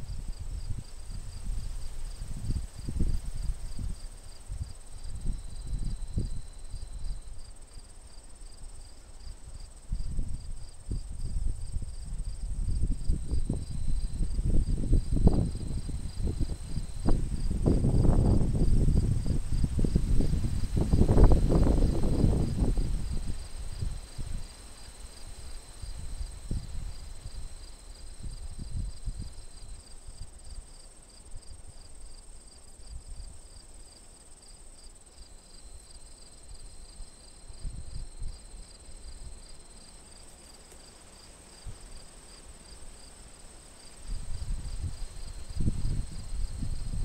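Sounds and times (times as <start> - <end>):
wind gusting against microphone: 0.0 - 7.5, 9.4 - 30.6, 44.0 - 47.0
insects chirping: 0.0 - 47.0.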